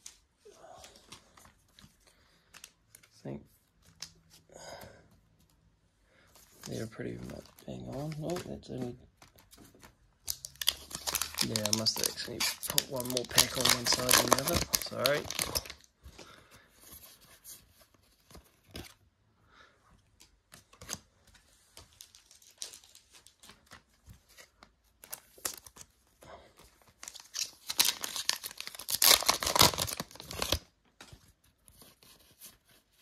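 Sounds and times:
cards being handled: 6.3 - 19.0
foil wrapper tearing and crinkling: 10.3 - 15.9, 27.0 - 30.7.

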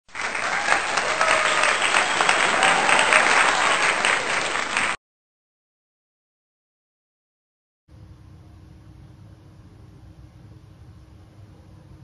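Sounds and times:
crowd applauding: 0.0 - 5.0.

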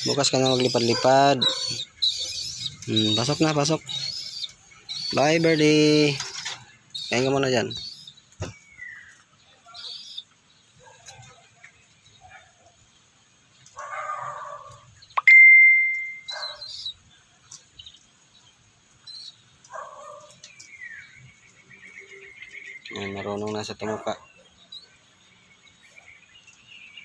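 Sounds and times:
bird chirping and whistling: 0.0 - 5.8, 15.2 - 17.0.

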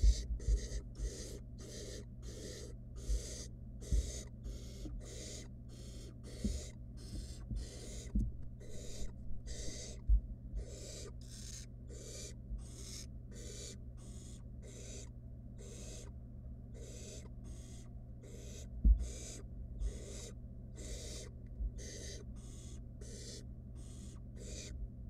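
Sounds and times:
owl nestlings hissing calls: 0.0 - 10.0, 10.6 - 24.8
dull thumps: 18.8 - 19.1.

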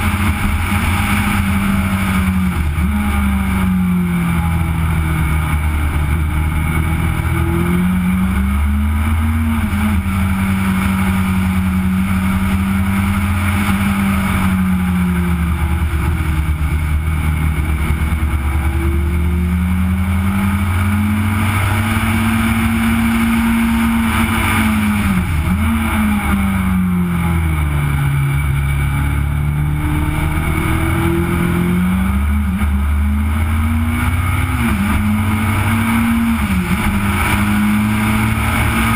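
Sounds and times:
racing engine revving: 0.0 - 38.9.

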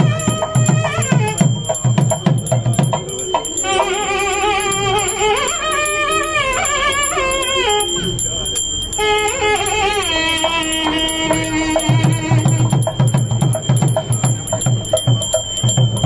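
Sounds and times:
quick drum beat: 0.0 - 4.1, 10.9 - 16.0
steady high ringing tone: 0.0 - 16.0.

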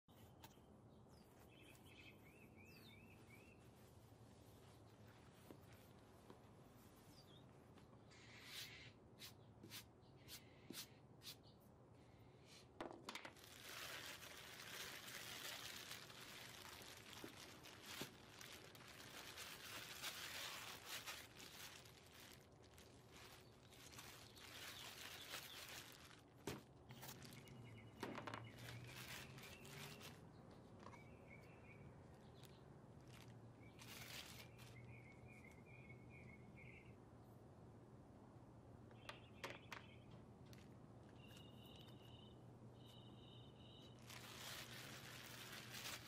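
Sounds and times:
birds chirping: 0.1 - 4.6, 26.8 - 37.0, 38.8 - 44.5
plastic bag rustling: 12.8 - 31.0, 32.9 - 35.5, 43.9 - 46.0.

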